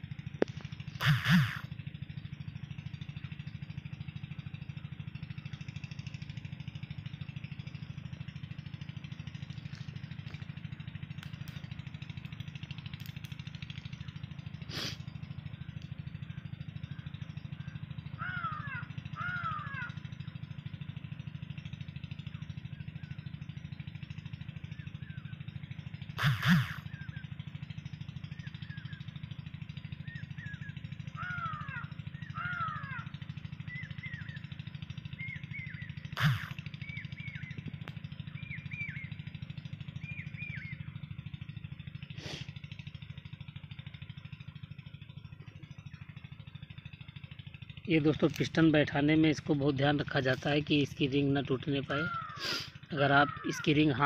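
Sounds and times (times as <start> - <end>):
steady low hum: 0.0 - 43.1
bird chirping: 33.6 - 34.5, 35.1 - 39.2, 40.0 - 41.0.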